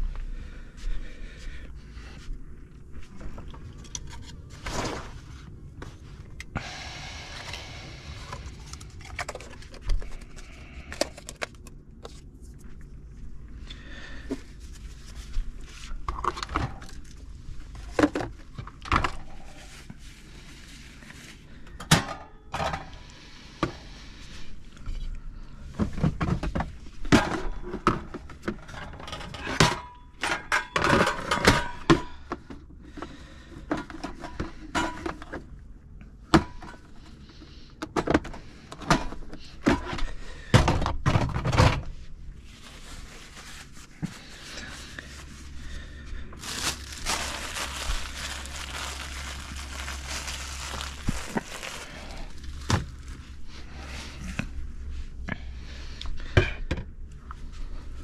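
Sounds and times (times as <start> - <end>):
objects knocking and rattling: 25.8 - 32.6, 37.8 - 41.9.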